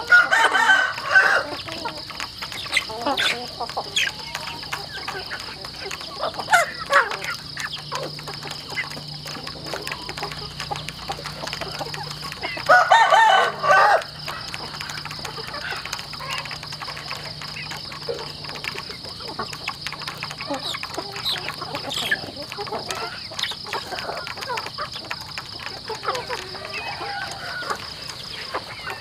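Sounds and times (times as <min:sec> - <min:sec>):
rooster crowing: 0:00.0 - 0:01.6, 0:12.6 - 0:15.9, 0:26.3 - 0:28.0
chickens clucking: 0:00.0 - 0:29.0
chickens pecking at plastic trough: 0:00.0 - 0:29.0.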